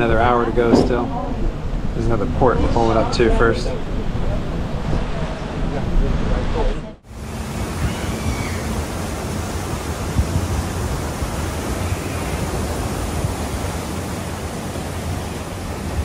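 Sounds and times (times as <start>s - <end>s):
water rushing around a boat: 0.0s - 16.0s
wind buffeting microphone: 0.0s - 16.0s.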